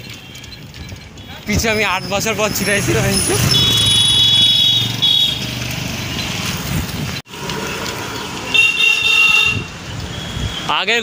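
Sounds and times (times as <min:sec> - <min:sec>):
street noise: 0:00.0 - 0:11.0
vehicle horn honking: 0:03.5 - 0:05.4, 0:08.5 - 0:10.6.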